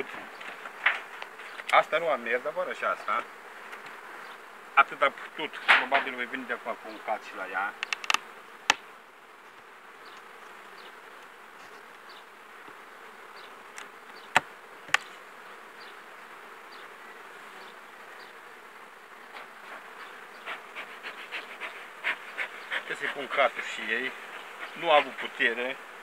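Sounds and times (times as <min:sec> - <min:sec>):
honeybees buzzing: 0:00.0 - 0:26.0
knocks on hive: 0:05.7 - 0:06.2.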